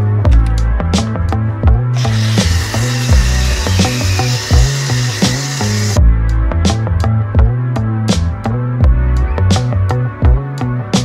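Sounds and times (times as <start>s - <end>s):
background music with beat: 0.0s - 11.0s
pressure washer foam spraying: 2.0s - 6.0s.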